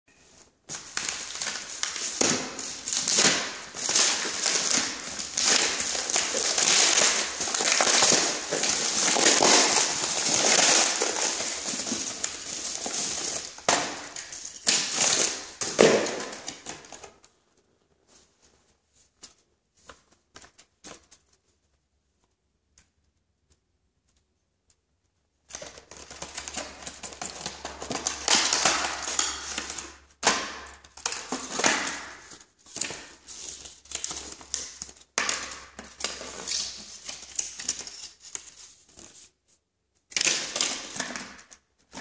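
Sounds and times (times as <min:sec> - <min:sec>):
paper envelope crinkling: 0:00.2 - 0:17.2.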